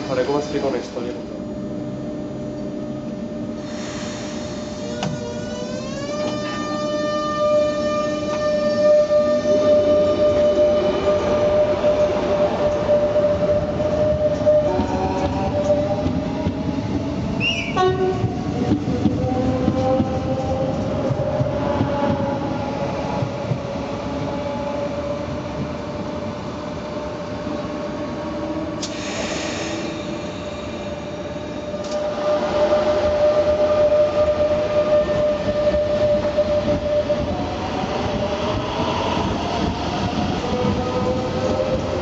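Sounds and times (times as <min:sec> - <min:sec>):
electric train whine: 0:00.0 - 0:42.0
hiss: 0:03.6 - 0:05.1, 0:28.8 - 0:30.8
train wheels rumbling: 0:04.7 - 0:42.0.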